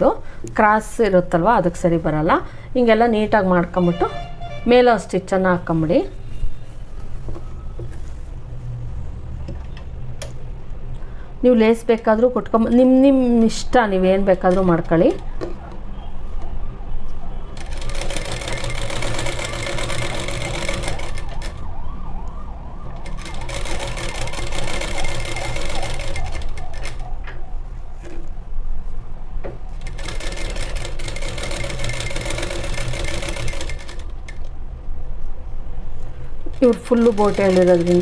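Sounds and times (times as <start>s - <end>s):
sewing machine stitching fabric: 17.6s - 21.4s, 29.8s - 34.4s, 36.5s - 38.0s.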